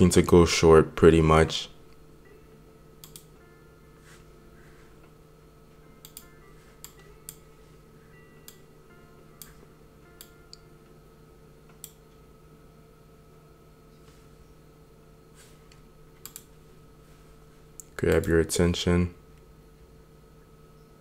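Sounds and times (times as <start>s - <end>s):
faint steady hum: 0.0s - 21.0s
computer mouse clicks: 3.0s - 3.3s, 6.0s - 7.4s, 11.7s - 12.0s, 15.7s - 16.5s, 17.8s - 18.4s.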